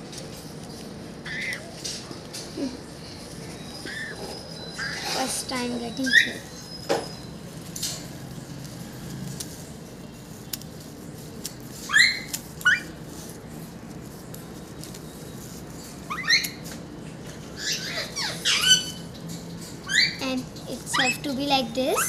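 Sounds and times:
parrot squawking: 1.2 - 1.6, 3.8 - 5.3, 11.9 - 12.9, 16.1 - 16.6, 17.6 - 19.0, 19.8 - 20.2, 20.9 - 21.2.

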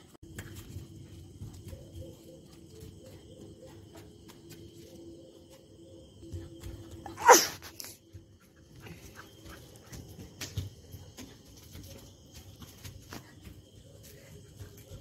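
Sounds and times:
running feet and paws on concrete: 0.0 - 15.0
puppy barking: 7.1 - 7.6.

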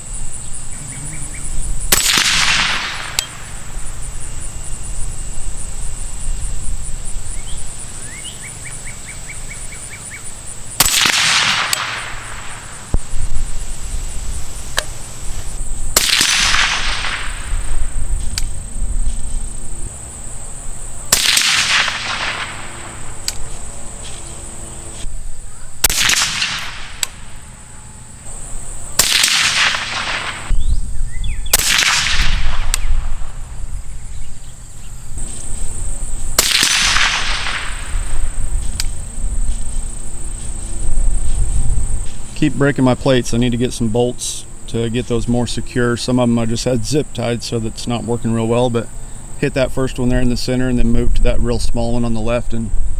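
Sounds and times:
low wind rumble: 0.0 - 47.2, 50.0 - 52.9
high insect drone: 0.0 - 52.9
suppressed rifle shots: 1.8 - 3.6, 10.8 - 13.1, 15.9 - 17.8, 21.1 - 23.5, 25.8 - 27.4, 29.0 - 30.6, 31.4 - 33.3, 36.4 - 38.9.

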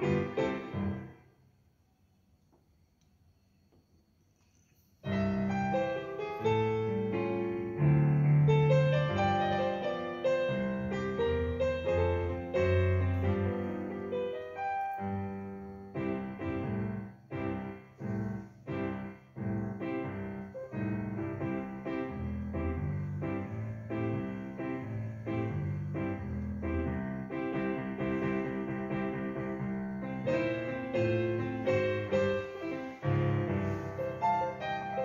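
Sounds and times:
digital piano chords and melody: 0.0 - 1.3, 5.0 - 35.0.

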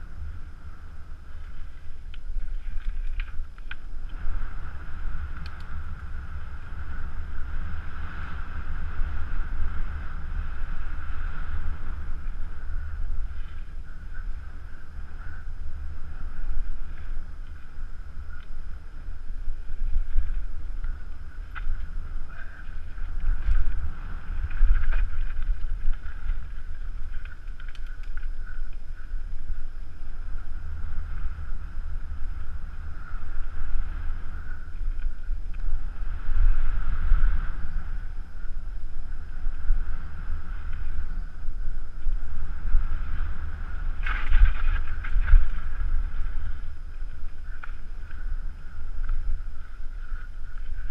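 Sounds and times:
bike tyres rumbling on dirt trail: 0.0 - 50.9
wind buffeting camera: 0.0 - 50.9
bike clicks and knocks: 2.1 - 4.2, 24.4 - 29.1.

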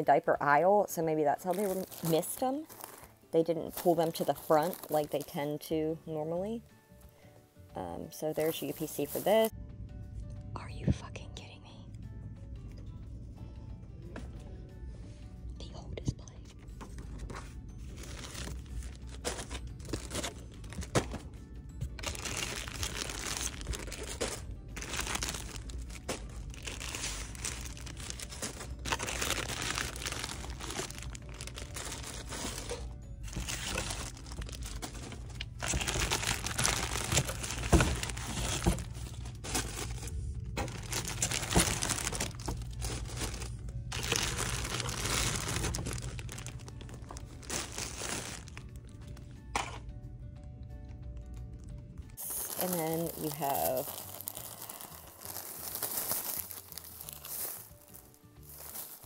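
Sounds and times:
background music: 0.0 - 59.0
plastic packaging crinkling: 1.3 - 5.6, 8.2 - 9.5, 17.2 - 21.3, 21.9 - 49.0, 52.2 - 59.0
packs landing knocks: 33.4 - 40.0.

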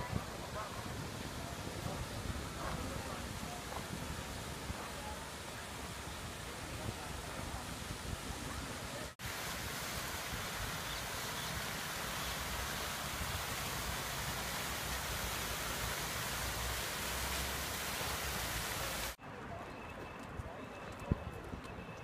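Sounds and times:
fountain jets splashing into pond: 0.0 - 19.2.

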